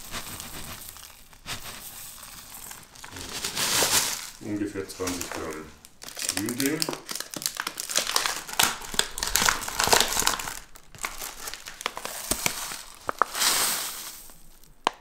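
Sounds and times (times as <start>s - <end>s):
tea leaves pouring into bowl: 0.0s - 7.2s, 10.0s - 14.7s
packet crinkling and rustling: 0.0s - 15.0s.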